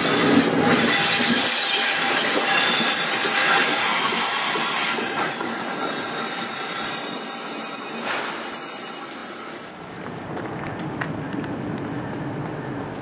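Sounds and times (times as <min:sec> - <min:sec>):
train wheels hissing on rail: 0:00.0 - 0:10.4.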